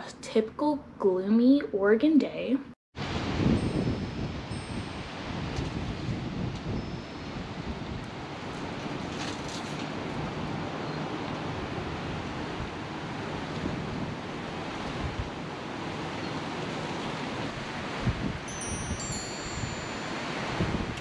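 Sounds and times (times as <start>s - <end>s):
wind rushing: 3.0s - 10.7s, 11.5s - 15.5s, 17.3s - 21.0s
wind buffeting microphone: 3.0s - 21.0s.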